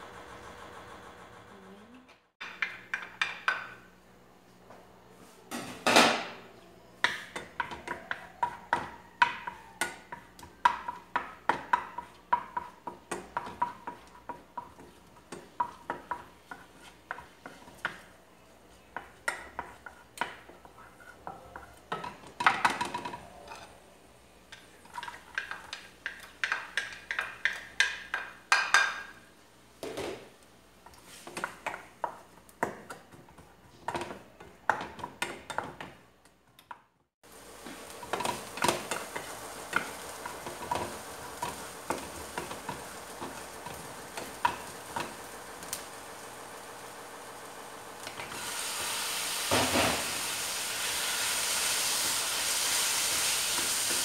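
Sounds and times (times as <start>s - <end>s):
wooden spatula scraping a frying pan: 19.4s - 21.8s.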